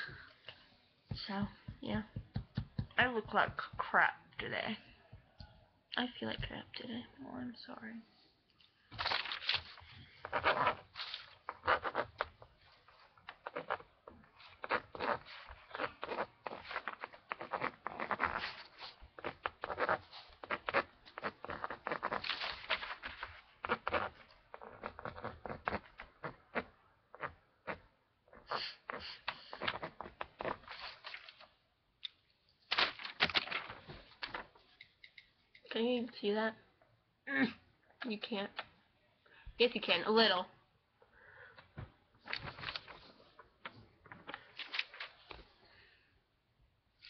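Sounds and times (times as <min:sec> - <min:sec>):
rustling handling noise: 0:08.7 - 0:19.2, 0:41.7 - 0:45.6.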